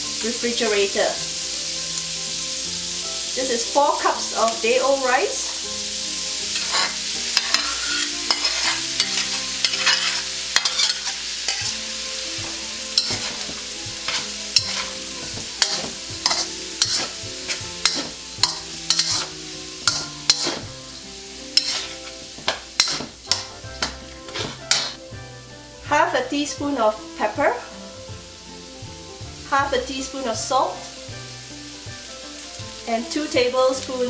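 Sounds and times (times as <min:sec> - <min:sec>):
rice sizzling in a wok: 0:00.0 - 0:34.0
metal spatula scraping a wok: 0:06.4 - 0:25.0.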